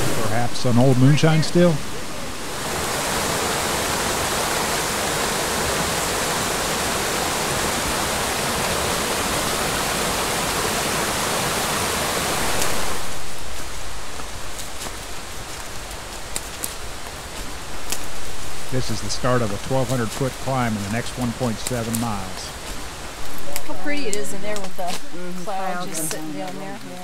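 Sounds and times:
waterfall rushing over rock: 0.0s - 27.0s
footsteps in dry leaves: 12.5s - 18.7s, 22.2s - 25.6s.

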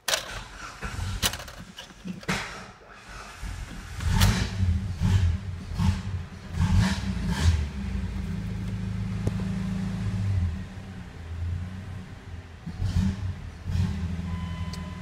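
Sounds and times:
engine revving: 3.4s - 15.0s.

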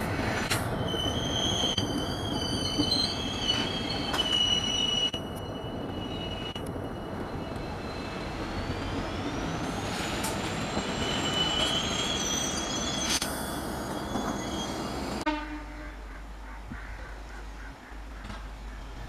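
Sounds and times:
rail joint clicks: 0.0s - 15.2s, 18.0s - 19.0s
train wheels rumbling on rails: 0.0s - 15.3s
high flange squeals: 0.7s - 15.3s.

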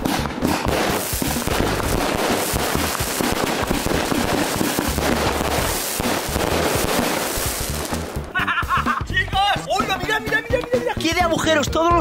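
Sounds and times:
fireworks crackling and banging: 0.0s - 8.4s.

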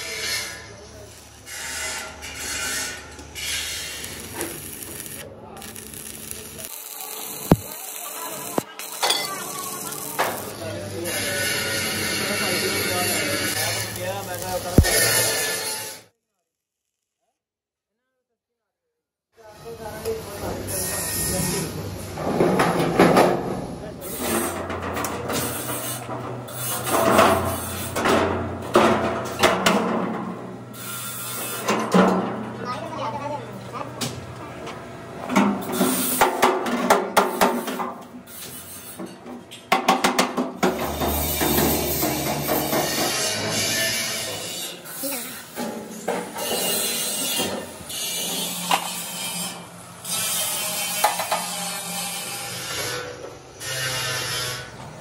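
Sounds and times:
welding arc crackling: 3.4s - 16.0s
metal panel scraping on floor: 40.6s - 44.0s.

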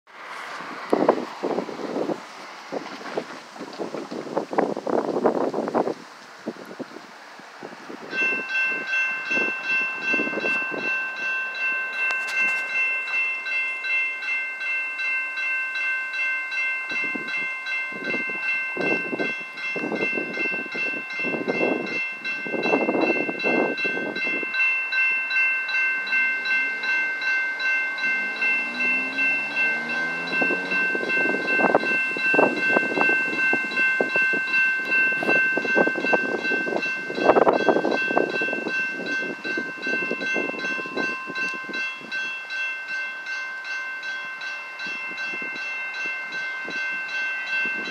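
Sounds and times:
road traffic passing: 0.1s - 47.9s
crossing warning bell ringing: 7.7s - 47.9s
vehicle accelerating: 25.6s - 36.0s.

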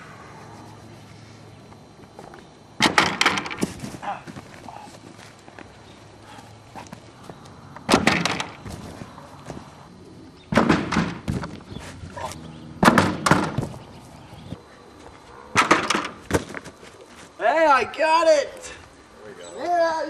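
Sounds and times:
thuds landing on foam mats: 2.8s - 4.5s, 7.9s - 9.6s, 10.5s - 11.7s, 12.8s - 13.8s, 15.6s - 16.7s.

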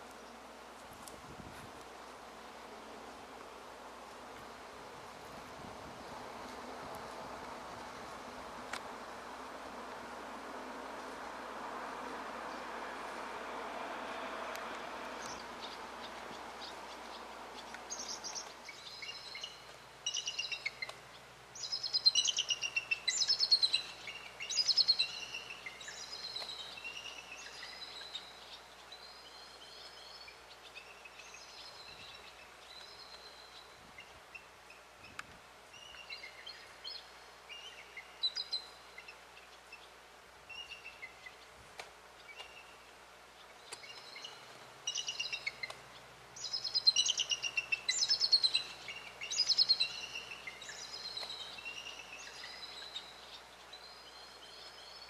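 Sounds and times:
eagle chittering whistled calls: 43.8s - 45.7s, 46.4s - 55.0s.

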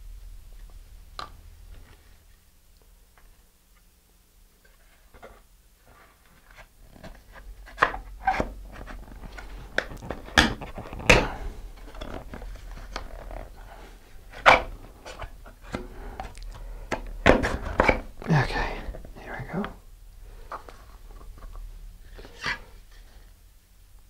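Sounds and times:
gloved hand handling noise: 4.7s - 23.3s.

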